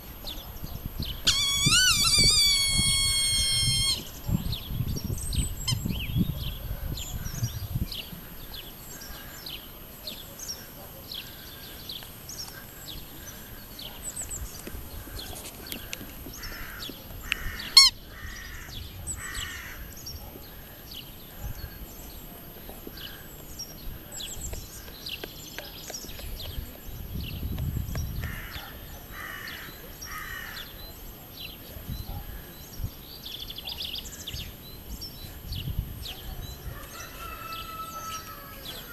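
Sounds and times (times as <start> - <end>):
small birds chirping: 0.0 - 38.9
rubber squeak toy squeaking: 1.2 - 4.1, 17.8 - 18.0.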